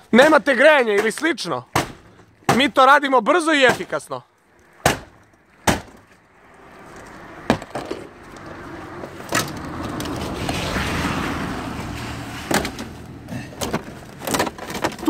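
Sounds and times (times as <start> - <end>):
plastic dashboard cracking and tearing: 13.6 - 15.0.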